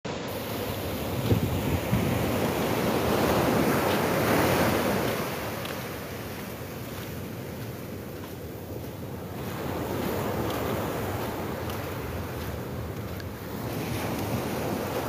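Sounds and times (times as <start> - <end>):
surf breaking on sand: 0.1 - 15.0.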